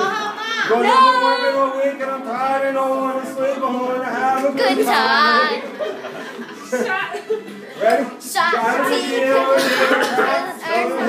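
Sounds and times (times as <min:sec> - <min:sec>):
man and woman singing: 0:08.5 - 0:11.0.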